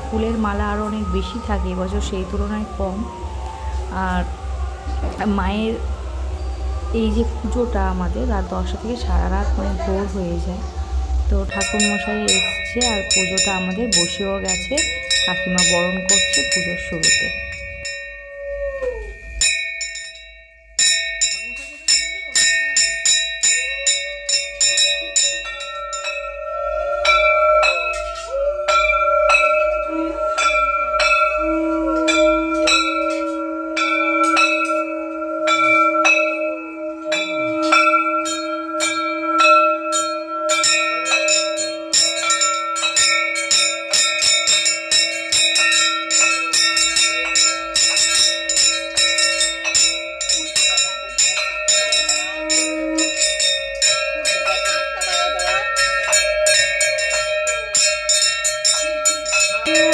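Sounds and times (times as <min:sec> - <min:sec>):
long low steady tone: 0:00.0 - 0:19.5, 0:23.6 - 0:43.1, 0:45.1 - 0:57.8, 0:59.5 - 0:59.9
brass bells rung rapidly: 0:11.3 - 0:18.3, 0:19.1 - 0:59.9.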